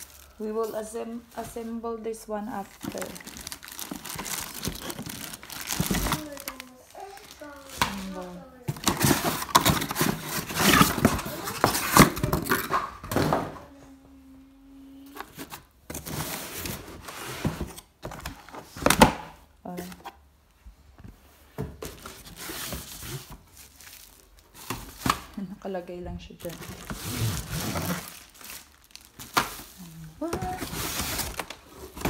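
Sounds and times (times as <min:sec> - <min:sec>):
cardboard scraping and rustling: 0:02.7 - 0:12.7, 0:21.8 - 0:25.3, 0:26.4 - 0:32.0.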